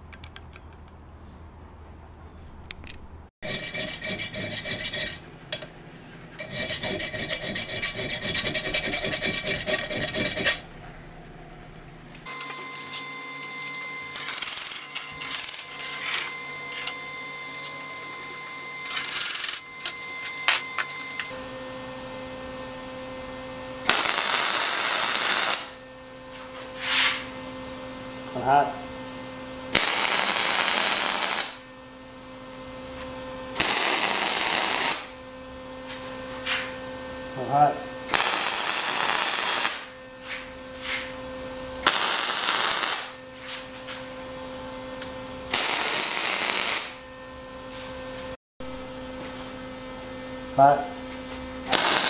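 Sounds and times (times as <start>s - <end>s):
steady low hum: 0.0s - 52.0s
welder crackling: 23.9s - 25.8s, 29.8s - 31.6s, 33.6s - 35.2s, 38.1s - 39.9s, 41.8s - 43.2s, 45.5s - 47.0s, 51.7s - 52.0s.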